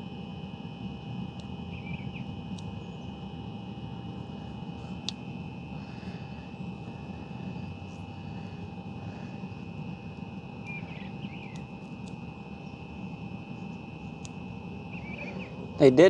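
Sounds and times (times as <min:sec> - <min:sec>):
low outdoor rumble: 0:00.0 - 0:16.0
thin high whine: 0:00.0 - 0:16.0
faint chirps: 0:01.7 - 0:03.1, 0:05.8 - 0:16.0.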